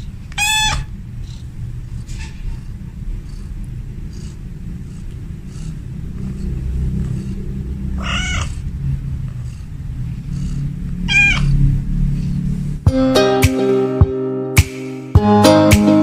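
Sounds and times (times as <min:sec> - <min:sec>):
steady low rumble: 0:00.0 - 0:13.0
cat meowing: 0:00.4 - 0:00.9, 0:08.0 - 0:08.6, 0:11.0 - 0:11.6.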